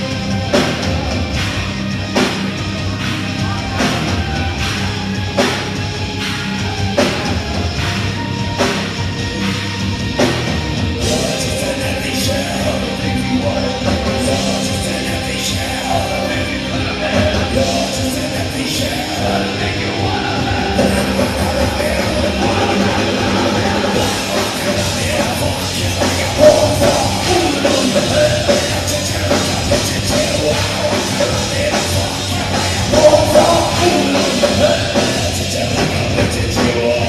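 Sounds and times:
live rock band playing: 0:00.0 - 0:37.0
singer shouting vocals: 0:11.0 - 0:37.0.

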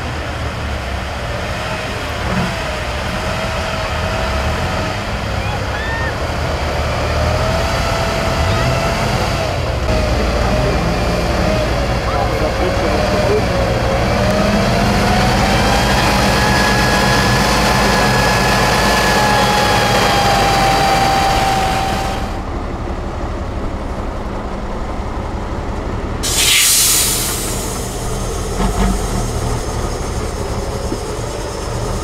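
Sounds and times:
engine whine: 0:00.0 - 0:32.0
truck engine under load: 0:00.0 - 0:32.0
compressed air hiss: 0:26.2 - 0:29.9.

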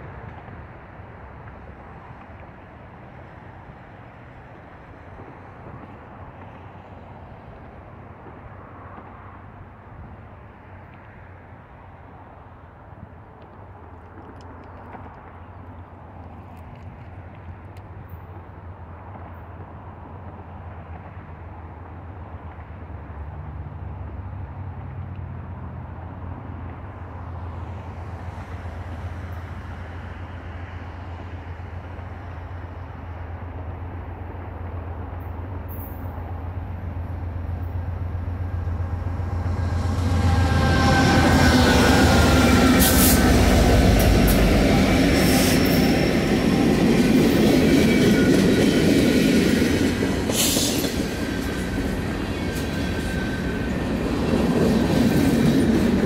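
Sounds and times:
distant rumble of vehicles: 0:00.0 - 0:56.0.

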